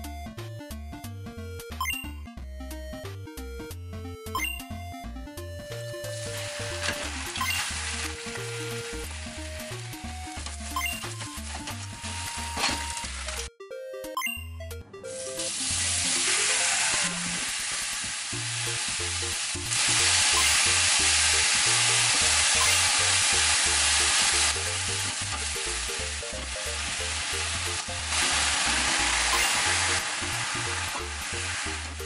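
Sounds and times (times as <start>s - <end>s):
light background music: 0.0s - 32.0s
pork sizzling in a frying pan: 6.1s - 13.4s, 15.2s - 32.0s.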